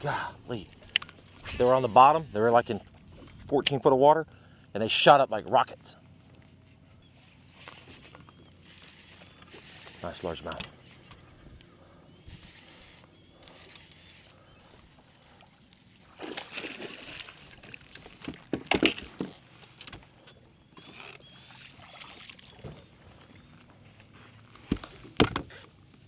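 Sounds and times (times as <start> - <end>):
fish splashing at the surface: 16.0 - 17.6.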